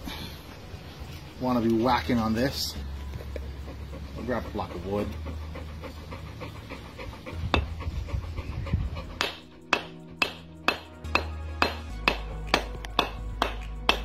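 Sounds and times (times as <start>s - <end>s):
background music: 0.0s - 14.0s
hammer tapping on wooden block: 9.2s - 14.0s.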